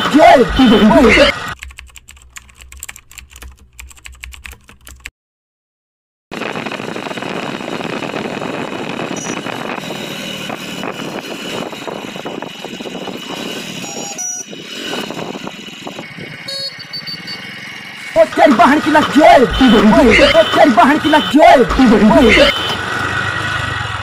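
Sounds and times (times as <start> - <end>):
wind noise on microphone: 6.4 - 16.5
motorcycle engine: 6.4 - 24.0.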